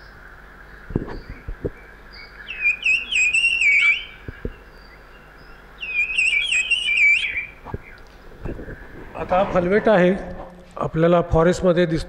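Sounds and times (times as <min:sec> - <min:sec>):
high whistled bird calls: 0:01.0 - 0:09.0.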